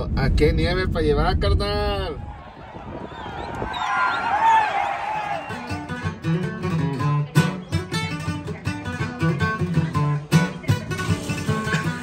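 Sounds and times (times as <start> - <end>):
acoustic guitars playing: 5.1 - 12.0.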